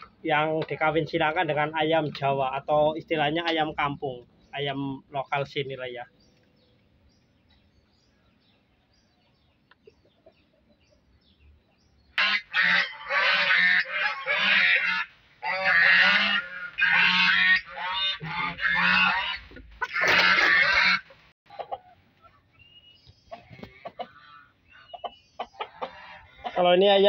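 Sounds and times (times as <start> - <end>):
chicken squawking: 12.2 - 22.5, 23.3 - 26.8.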